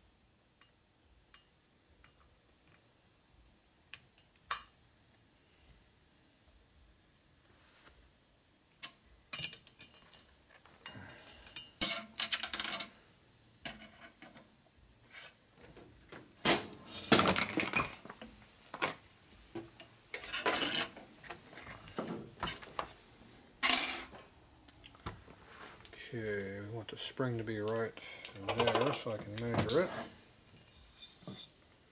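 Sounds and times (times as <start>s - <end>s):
metal parts clinking on workbench: 11.2s - 12.9s.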